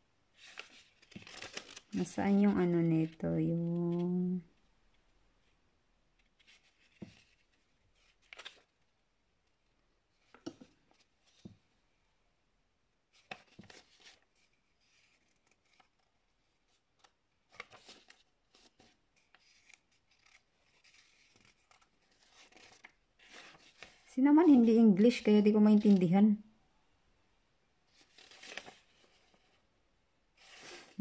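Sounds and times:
paper leaflet rustling: 0.4 - 4.3, 6.2 - 8.8, 13.1 - 26.1, 27.9 - 29.6, 30.4 - 31.0.

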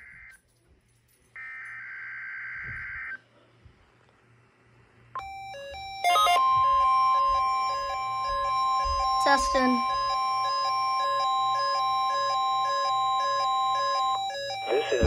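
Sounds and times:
steady warning alarm tone: 0.0 - 0.4, 1.4 - 3.2, 5.2 - 15.0
alert receiver beeps: 5.2 - 15.0.

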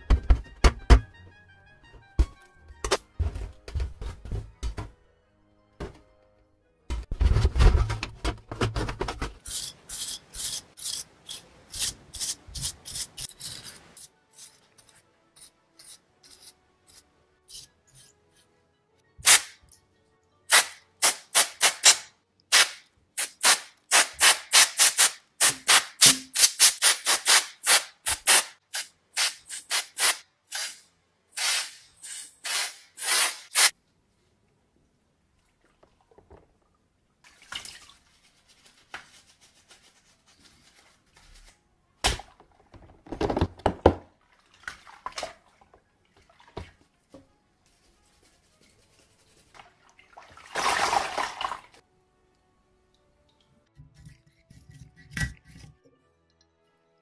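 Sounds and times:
compressed air bursts: 20.5 - 33.7
water sloshing in a tub: 37.2 - 38.3, 44.1 - 47.0, 49.5 - 51.8.

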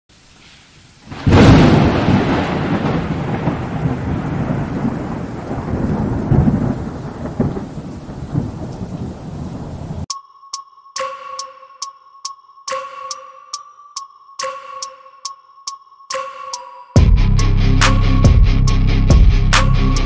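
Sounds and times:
rain: 0.1 - 10.1
thunder crack and rumble: 1.1 - 10.1.

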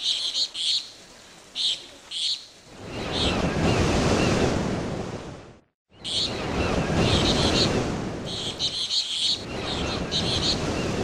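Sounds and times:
birds chirping: 5.9 - 11.0.

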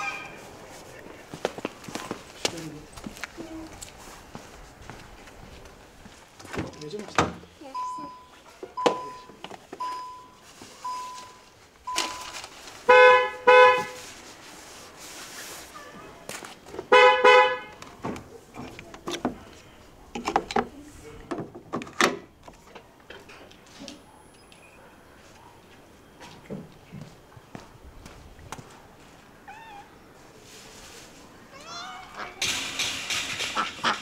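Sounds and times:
car horn honks: 0.0 - 0.4, 12.9 - 14.0, 16.9 - 17.8
car warning chime beeping: 7.7 - 12.3.

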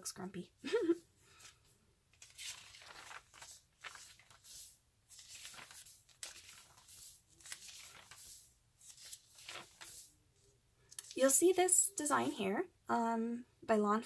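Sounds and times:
notebook pages flipping: 1.4 - 10.1, 10.9 - 11.3.

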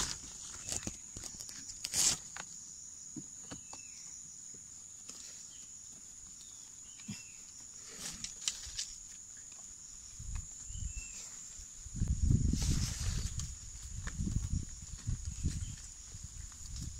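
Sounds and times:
dry palm sheaths rustling: 0.0 - 2.6, 5.0 - 9.8
high insect drone: 0.0 - 16.9.

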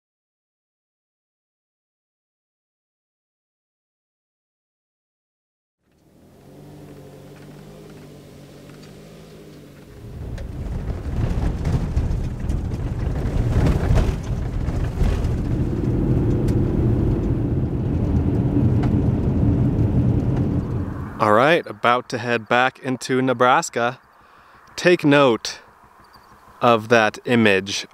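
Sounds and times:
car engine running: 5.9 - 21.9, 24.0 - 27.9
tyres rumbling on gravel: 5.9 - 27.9
sharp ticks: 23.9 - 27.9.

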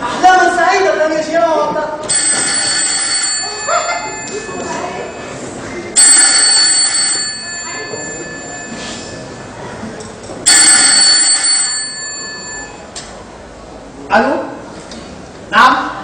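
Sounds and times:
telephone ringing: 2.0 - 9.6, 10.4 - 13.0.

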